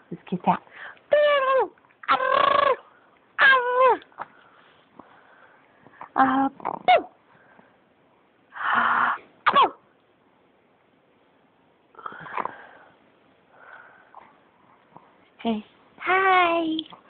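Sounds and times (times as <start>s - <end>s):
baby squealing: 1.1s - 2.8s, 3.4s - 4.0s
baby coughing: 9.5s - 9.8s.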